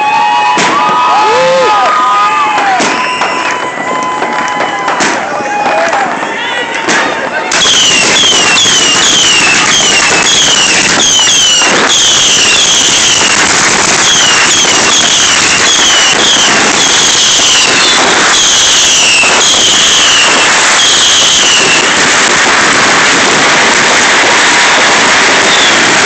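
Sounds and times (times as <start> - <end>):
firework bangs: 0.0 - 26.0
whistling firework shots: 0.0 - 26.0
hiss of burning sparks: 7.5 - 26.0.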